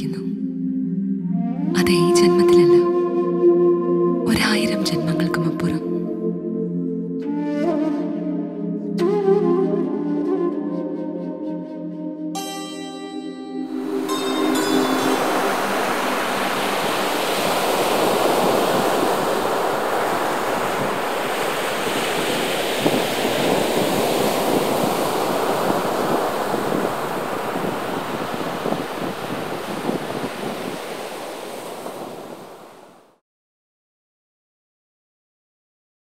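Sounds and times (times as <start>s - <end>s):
ocean waves breaking: 13.7s - 33.2s.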